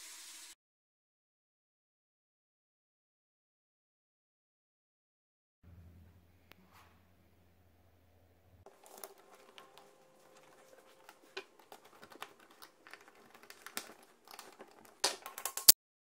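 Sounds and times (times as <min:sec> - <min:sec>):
screwdriver clicking and scraping: 0:08.7 - 0:15.8.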